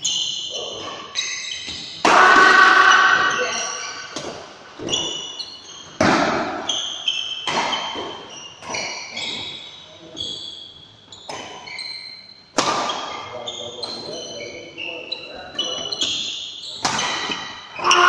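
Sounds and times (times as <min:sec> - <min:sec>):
shoes squeaking on court floor: 0:00.0 - 0:18.0
rackets hitting shuttlecock: 0:00.1 - 0:05.3, 0:05.9 - 0:09.5, 0:12.5 - 0:14.0, 0:15.9 - 0:18.0.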